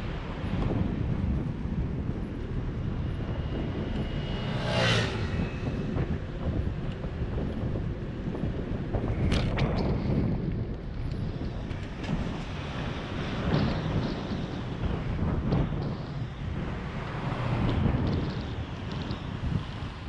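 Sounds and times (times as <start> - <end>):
road traffic rumble: 0.0 - 20.0
wind on microphone: 0.0 - 20.0
moped passing by: 2.5 - 6.8.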